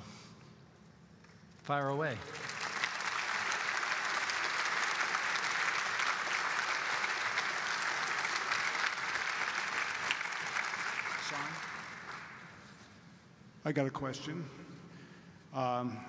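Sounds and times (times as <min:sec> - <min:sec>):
audience applauding: 0:01.7 - 0:12.8.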